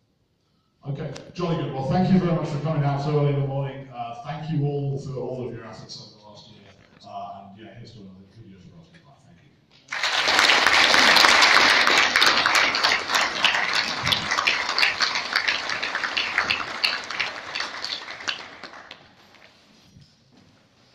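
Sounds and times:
audience applauding: 9.9s - 19.6s.

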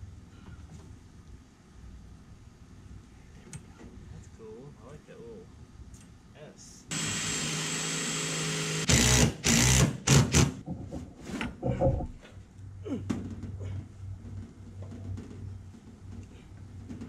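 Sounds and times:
cordless drill driving screw: 6.9s - 10.5s
knocks and tubing handling: 10.6s - 12.4s.

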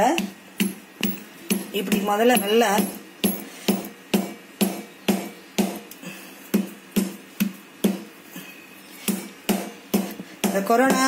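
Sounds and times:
stone pounding on countertop: 0.1s - 5.8s.

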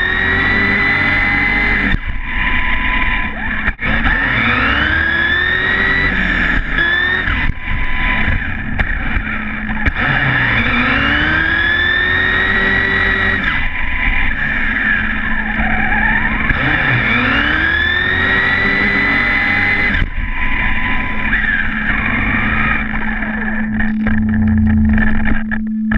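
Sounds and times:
tyre and road noise: 0.0s - 25.7s
electric motor whining: 0.0s - 25.9s.

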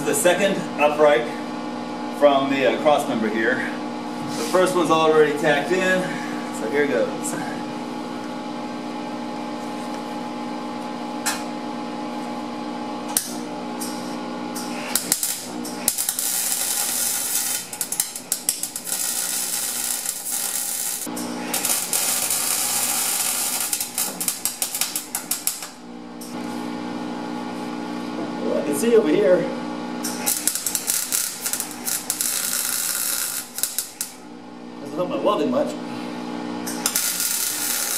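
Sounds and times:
steady hum: 0.0s - 37.9s
welding arc crackling: 14.6s - 25.8s, 30.0s - 34.3s, 36.7s - 37.9s.

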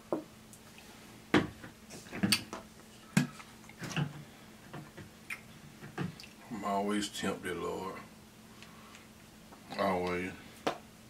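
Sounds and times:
mouth smacks: 5.2s - 5.5s.

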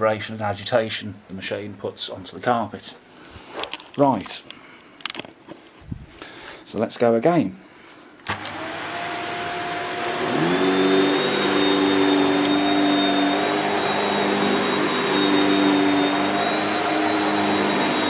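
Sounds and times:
vacuum cleaner running: 8.3s - 18.0s.

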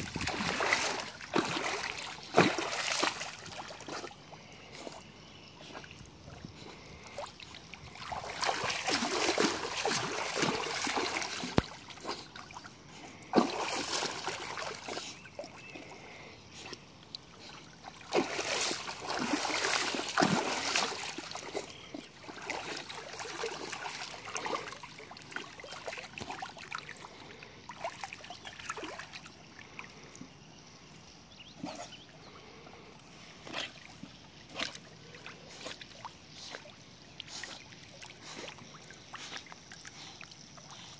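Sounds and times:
dog splashing in water: 0.0s - 4.1s, 7.1s - 12.5s, 13.3s - 15.9s, 17.9s - 27.0s.

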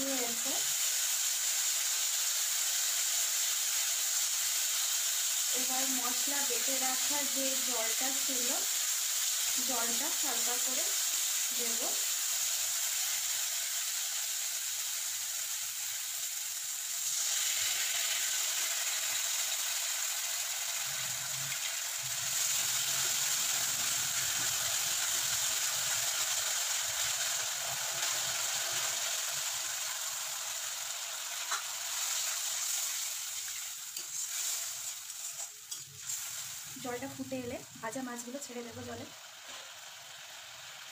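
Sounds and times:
spice paste sizzling in oil: 0.0s - 40.9s
spatula stirring in wok: 31.5s - 36.6s.

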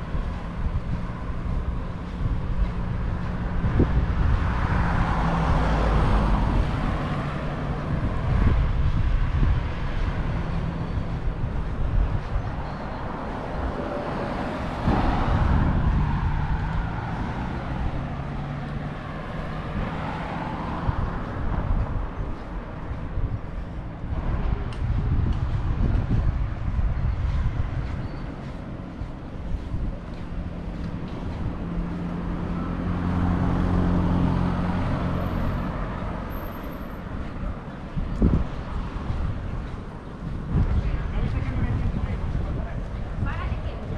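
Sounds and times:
vehicle engine passing: 13.0s - 43.9s.

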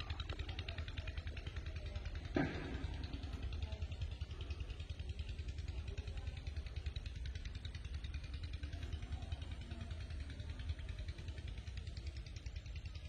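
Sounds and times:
engine running with low rumble: 0.0s - 13.0s.

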